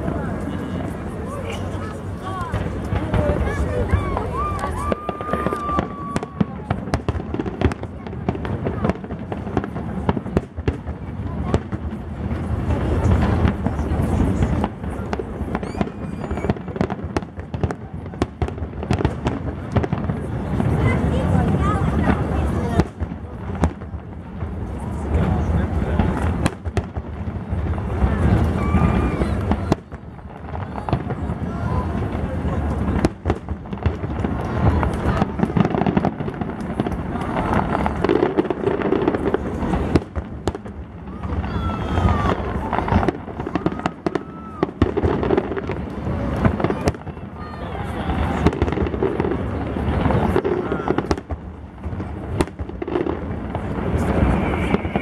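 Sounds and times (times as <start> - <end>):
continuous rumble: 0.0 - 55.0
firework crackles: 0.0 - 55.0
firework whistle: 3.9 - 6.8, 15.4 - 16.9, 28.2 - 29.8, 53.1 - 55.0
firework shells bursting: 48.3 - 55.0.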